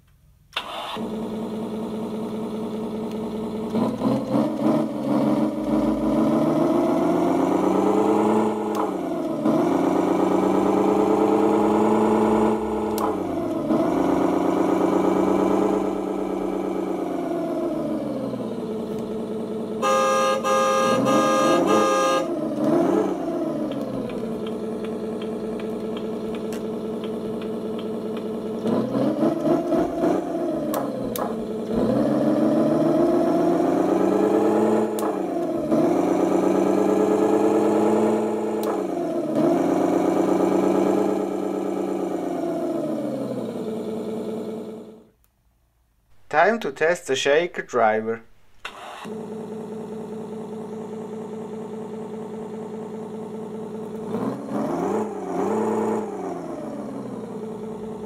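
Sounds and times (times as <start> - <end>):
simulated engine revving: 0.6 - 45.2, 48.2 - 58.0
horn from speakers: 19.8 - 22.4.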